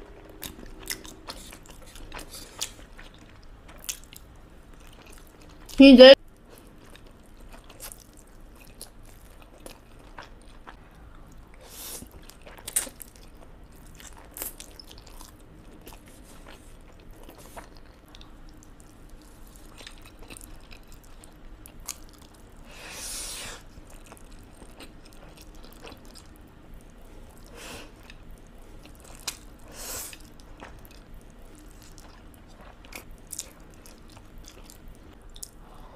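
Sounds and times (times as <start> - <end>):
wet chewing: 0.2 - 5.7, 23.8 - 35.6.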